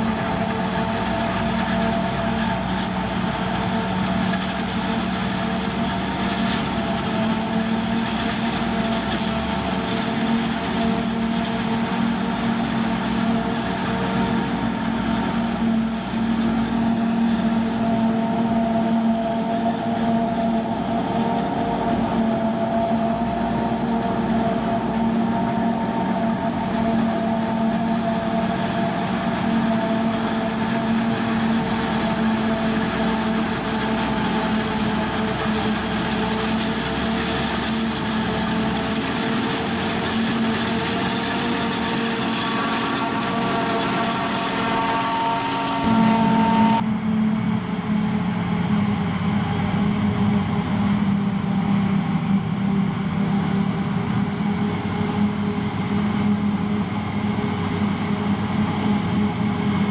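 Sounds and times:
loud machine drone: 0:00.0 - 0:59.9
high whining tones: 0:39.6 - 0:47.3.

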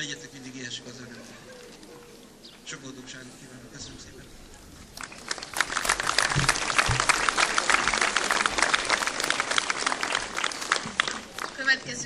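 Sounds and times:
audience clapping: 0:05.0 - 0:11.9.

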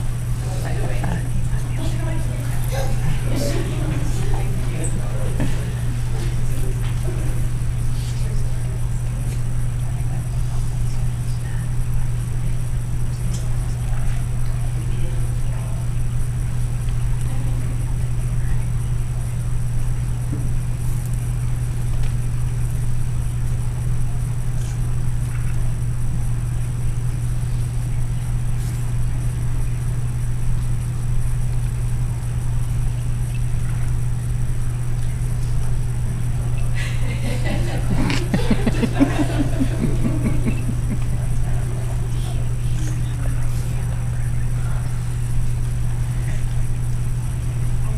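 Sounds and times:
faint indistinct voices: 0:00.0 - 0:21.1, 0:34.7 - 0:47.9
steady low hum: 0:00.0 - 0:47.9.

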